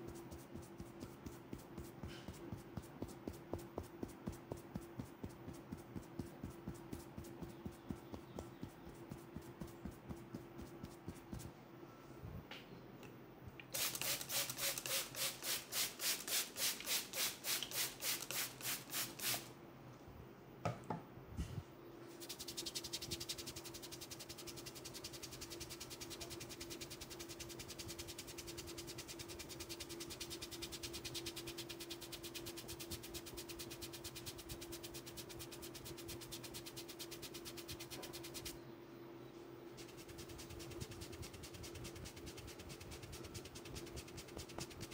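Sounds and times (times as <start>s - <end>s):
hands rubbing hair: 0.0s - 11.5s, 22.2s - 38.5s, 39.8s - 44.9s.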